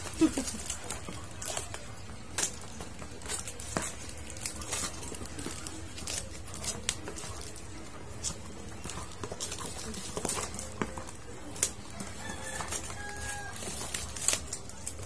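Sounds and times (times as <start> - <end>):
plastic packaging rustling: 0.0 - 15.0
scissors snipping: 8.2 - 15.0.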